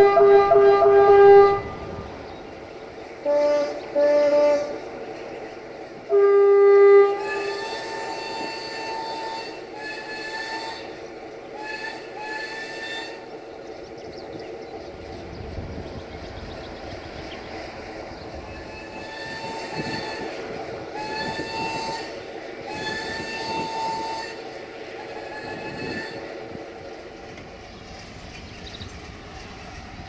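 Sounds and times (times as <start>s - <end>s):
higher-pitched horn notes: 0.0s - 2.0s
locomotive air horn blasts: 0.0s - 2.0s, 3.2s - 4.8s, 6.1s - 13.3s, 18.5s - 26.6s.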